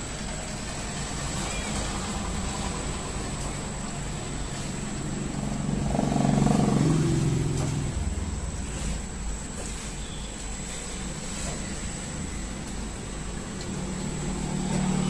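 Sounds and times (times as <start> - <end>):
low traffic rumble: 0.0 - 15.0
vehicle engine passing: 4.5 - 9.2, 13.7 - 15.0.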